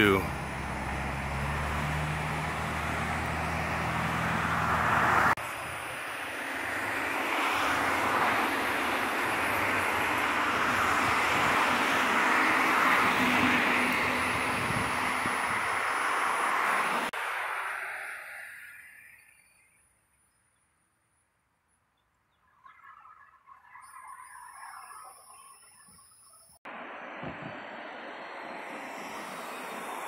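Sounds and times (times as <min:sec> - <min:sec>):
vehicle engine humming: 0:00.0 - 0:17.2, 0:26.7 - 0:30.0
rushing outdoor noise: 0:00.0 - 0:19.6, 0:26.7 - 0:30.0.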